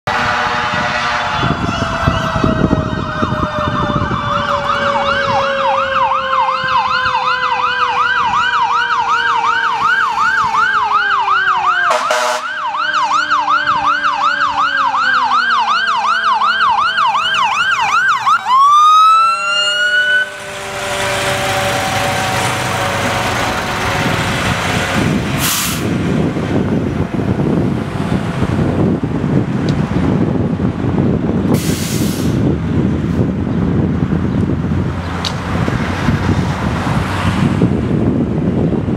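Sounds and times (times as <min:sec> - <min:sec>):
fire engine siren wailing: 0:00.0 - 0:38.9
truck rumbling past: 0:00.1 - 0:38.9
lower siren tone gliding down: 0:00.2 - 0:25.2.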